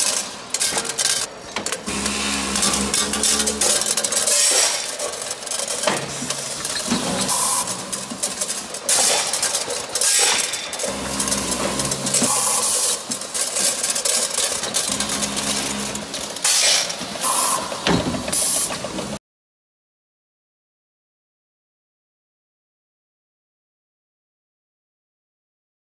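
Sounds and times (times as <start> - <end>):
machinery clicks and rattles: 0.0 - 19.2
motor humming: 1.8 - 4.2.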